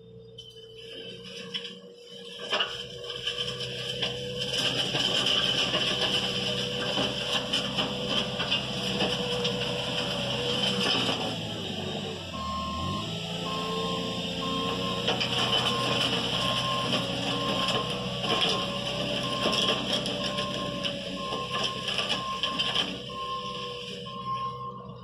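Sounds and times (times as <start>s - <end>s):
reversing alarm beeping: 0.0s - 25.0s
machine engine working: 2.3s - 25.0s
soil and stones crunching: 12.7s - 24.8s.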